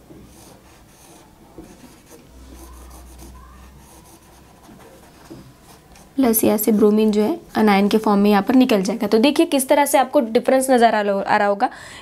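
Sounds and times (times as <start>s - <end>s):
marker rubbing on whiteboard: 0.0s - 7.2s.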